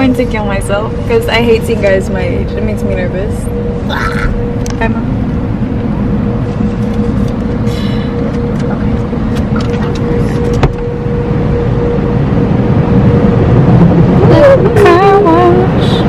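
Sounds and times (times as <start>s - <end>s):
car wash machinery rumble: 0.0s - 16.0s.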